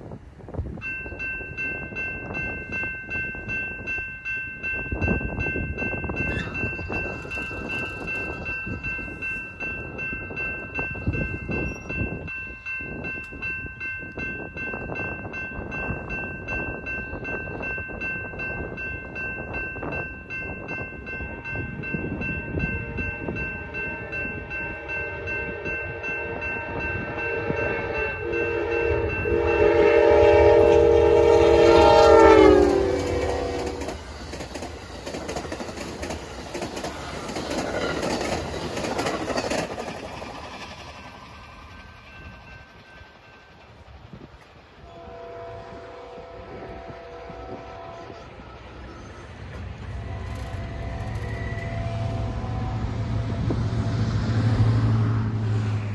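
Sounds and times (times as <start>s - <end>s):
electronic crossing bell ringing: 0.8s - 33.9s
train horn: 23.3s - 34.0s, 44.8s - 55.1s.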